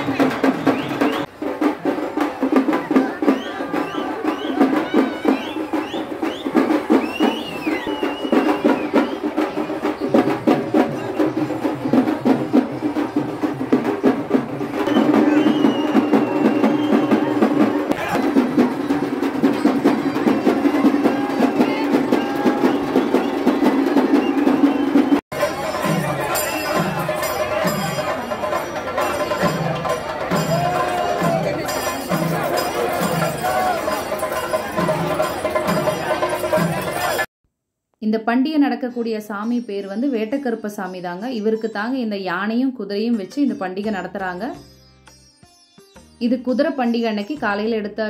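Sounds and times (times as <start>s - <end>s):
percussion ensemble drumming: 0.0s - 37.3s
shrill rising calls: 3.2s - 10.3s, 14.8s - 28.6s.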